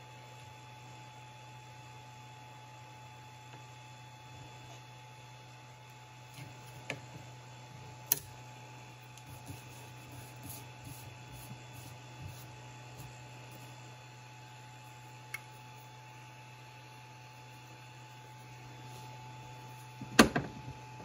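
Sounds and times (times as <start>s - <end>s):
steady low hum: 0.0s - 21.0s.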